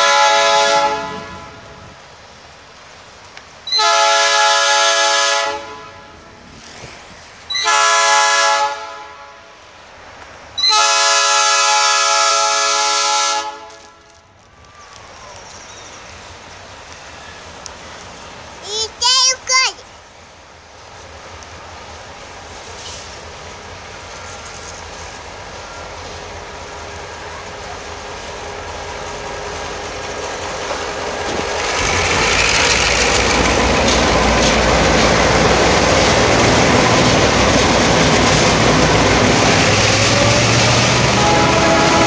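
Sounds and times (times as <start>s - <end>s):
train wheels on rails: 0.0s - 5.4s, 6.2s - 8.4s, 9.6s - 42.0s
freight train locomotives passing: 0.0s - 42.0s.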